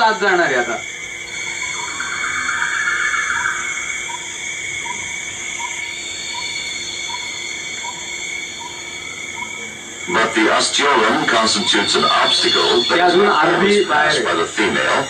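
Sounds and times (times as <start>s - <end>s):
high-pitched tones: 1.2s - 5.8s, 10.1s - 15.0s
soft blips: 1.4s - 5.1s.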